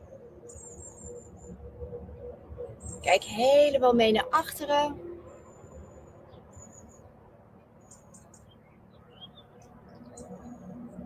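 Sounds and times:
low background noise: 0.0 - 11.0
small birds chirping and whistling: 0.5 - 1.5.

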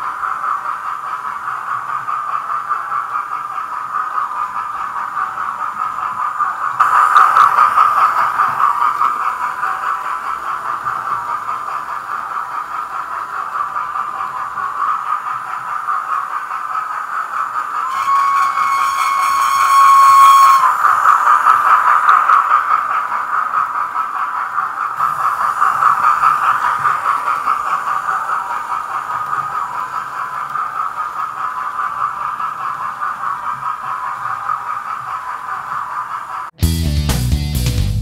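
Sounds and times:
model train steam chuffs: 0.0 - 38.0
train whistle: 17.8 - 20.9.

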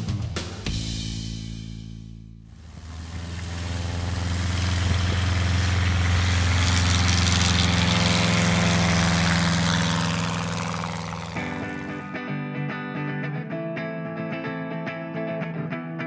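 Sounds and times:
light aircraft engine and propeller: 2.5 - 12.1.

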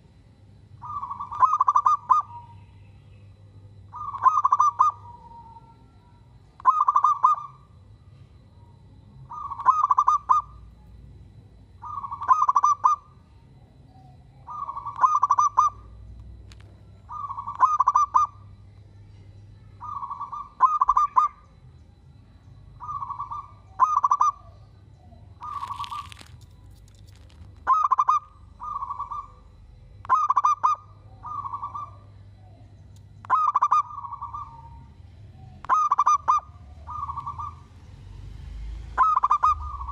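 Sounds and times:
dove cooing: 0.8 - 2.6, 3.9 - 6.0, 6.6 - 7.7, 9.2 - 10.7, 11.7 - 13.2, 13.9 - 16.0, 17.0 - 18.5, 19.8 - 21.4, 22.8 - 38.0, 38.9 - 39.9.

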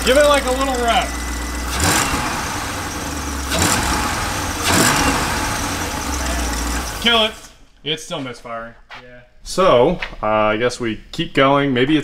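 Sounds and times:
engine throttle blips: 0.0 - 7.6
misfiring engine idling: 0.0 - 7.7.

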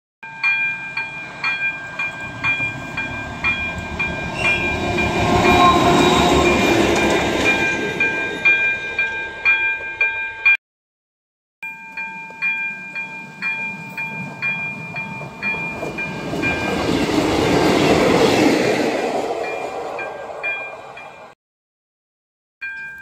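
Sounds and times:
train wheels: 0.2 - 10.2, 11.9 - 21.3
diesel locomotive passing: 0.2 - 10.5, 12.3 - 21.4
level crossing bell ringing: 0.2 - 10.6, 11.6 - 17.0, 22.6 - 23.0.

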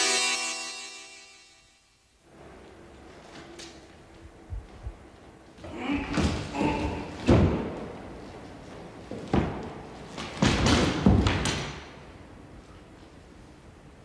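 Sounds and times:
heavy thuds on wooden floor: 6.1 - 7.9, 9.1 - 9.8.

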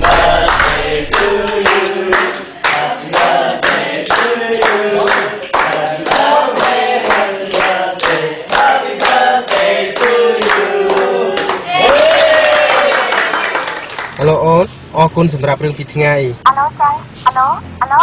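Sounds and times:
group of people singing: 0.0 - 11.8.

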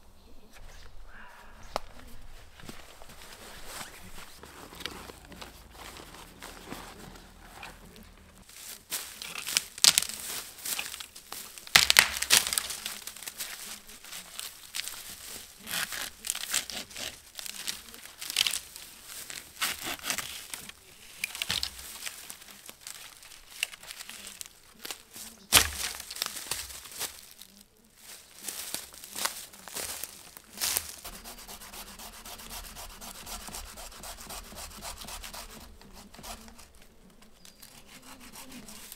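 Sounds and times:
rustling in dry leaves: 0.0 - 38.9
dry wood cracking: 0.6 - 38.9
wood snapping: 7.3 - 27.5, 28.1 - 38.9.

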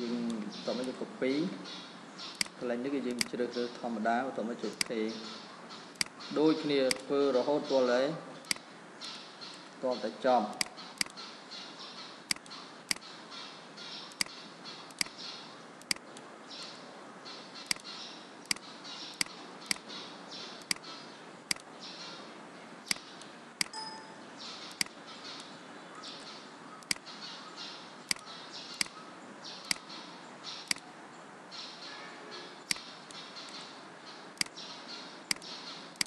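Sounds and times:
faint steady hiss: 0.0 - 36.0
computer mouse clicking: 6.8 - 7.1, 12.3 - 13.0, 17.7 - 17.9, 26.8 - 27.0.

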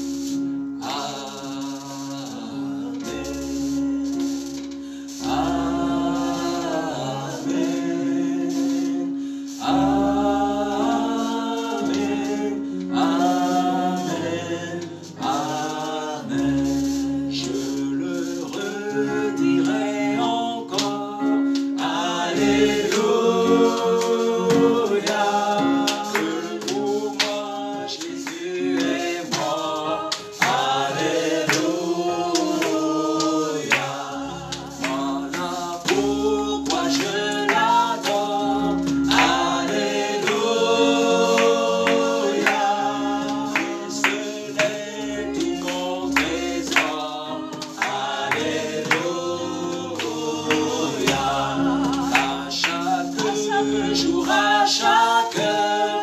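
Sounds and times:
group singing gospel song: 0.0 - 56.0
hand claps: 24.0 - 40.5, 41.3 - 49.3, 49.9 - 53.6.

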